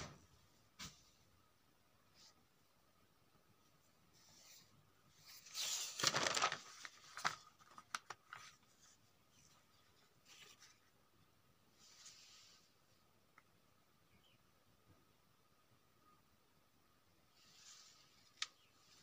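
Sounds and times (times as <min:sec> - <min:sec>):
paper rustling: 0:04.2 - 0:11.0
paper crinkles and taps: 0:05.6 - 0:08.9.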